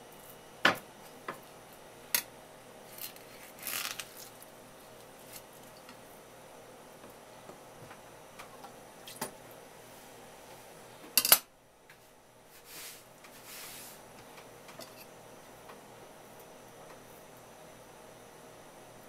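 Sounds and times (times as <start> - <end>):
soft brushing: 12.5 - 14.1.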